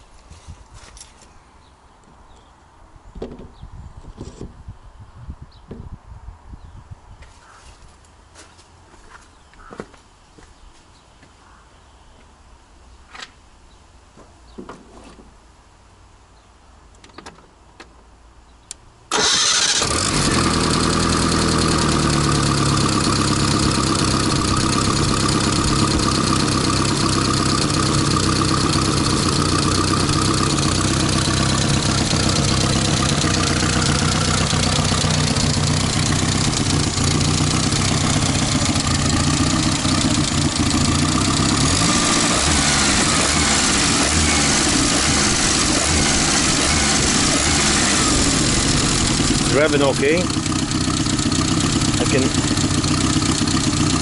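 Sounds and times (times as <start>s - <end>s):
footsteps: 7.2s - 11.4s
car engine starting and running: 19.1s - 54.0s.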